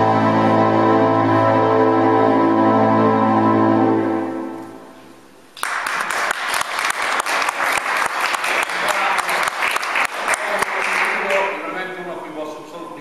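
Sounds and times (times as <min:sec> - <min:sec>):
held musical chord: 0:00.0 - 0:05.0
audience applause: 0:05.6 - 0:11.6.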